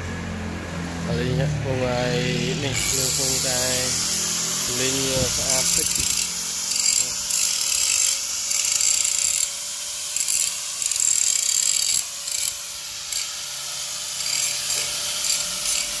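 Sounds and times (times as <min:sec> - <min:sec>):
angle grinder motor whine: 0:00.0 - 0:16.0
grinding disc hissing on metal: 0:01.1 - 0:09.5.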